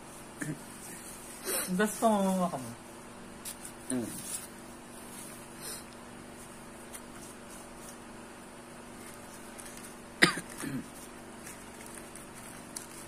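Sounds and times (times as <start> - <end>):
steady low hum: 0.0 - 13.0
person coughing: 0.4 - 0.7, 10.2 - 11.0.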